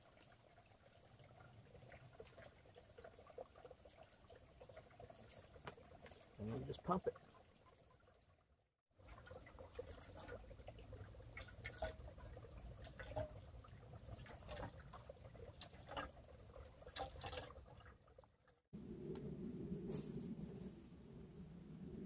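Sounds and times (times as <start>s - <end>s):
water trickling into metal canteen: 0.0s - 18.6s
clicks and splashes: 9.0s - 18.7s
hand pump water filter pumping: 9.1s - 18.0s.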